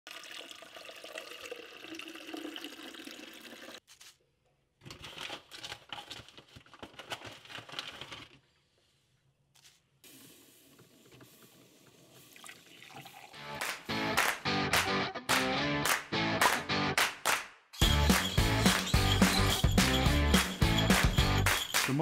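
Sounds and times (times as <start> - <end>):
water running: 0.1 - 3.8, 10.0 - 14.1
paper coffee filter crinkling: 3.8 - 8.8.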